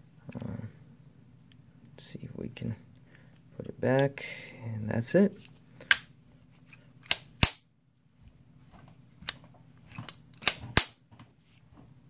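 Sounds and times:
pistol metal parts clicking: 9.2 - 11.0.

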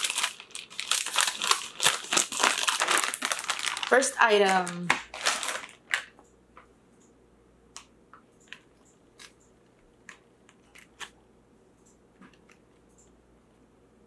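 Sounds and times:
plastic bag crinkling: 0.0 - 6.2.

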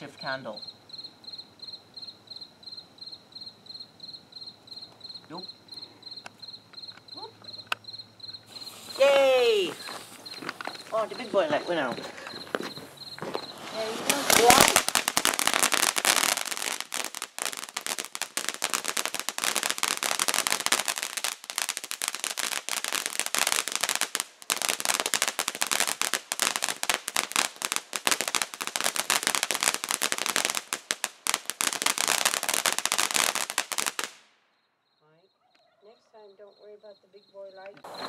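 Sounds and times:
firework fountain crackling: 8.4 - 34.3.

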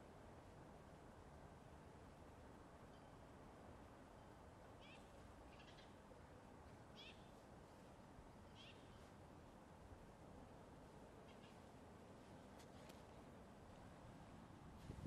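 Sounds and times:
faint high-pitched chirping calls: 4.1 - 7.8, 8.4 - 9.2.

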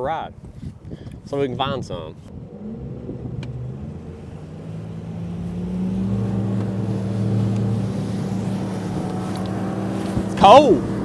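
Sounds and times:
rush of wind and water: 0.0 - 11.0
outboard motor accelerating: 2.3 - 11.0.

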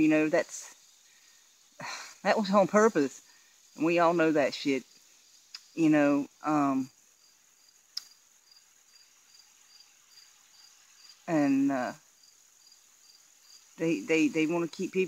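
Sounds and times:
crickets chirping: 0.0 - 15.0
woman's voice: 1.8 - 3.2, 11.3 - 12.0, 13.8 - 15.0.

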